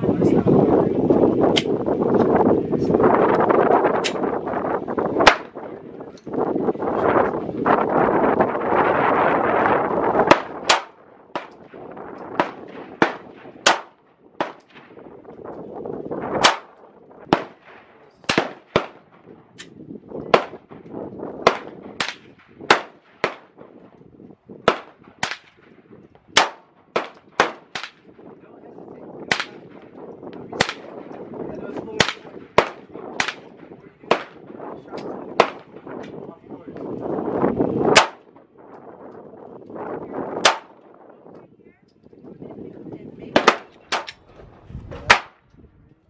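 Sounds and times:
wind on microphone: 0.0s - 46.0s
pistol shots: 5.2s - 5.6s, 10.2s - 15.1s, 16.3s - 23.9s, 24.6s - 28.3s, 29.3s - 31.2s, 32.0s - 36.1s, 37.9s - 38.4s, 40.4s - 40.9s, 43.3s - 44.2s, 45.0s - 45.4s.

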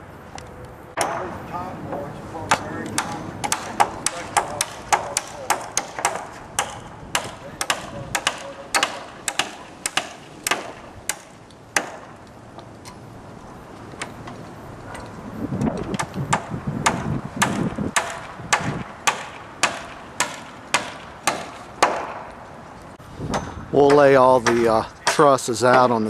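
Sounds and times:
hammer driving nails into wood: 2.5s - 12.1s, 15.9s - 22.3s.

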